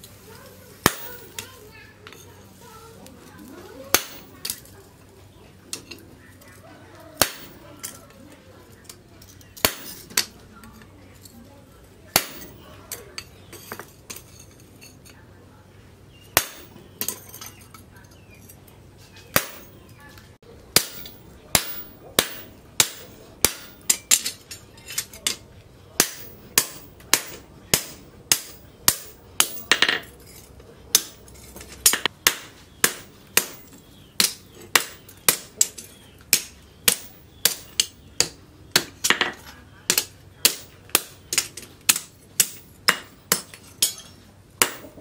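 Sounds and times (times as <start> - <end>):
hammer striking chisel on metal: 0.8 - 1.6, 3.9 - 4.7, 7.2 - 8.0, 9.5 - 10.4, 12.1 - 14.5, 16.3 - 17.8, 19.3 - 20.0, 20.7 - 25.4, 26.0 - 45.0.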